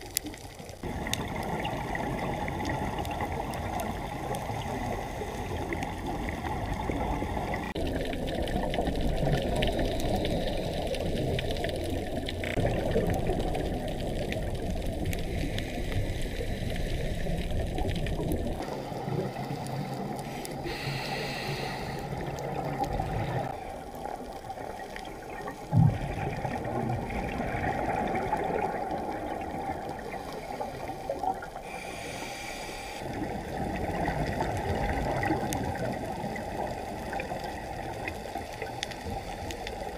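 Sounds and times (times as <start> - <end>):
muffled underwater rush: 0.0 - 39.9.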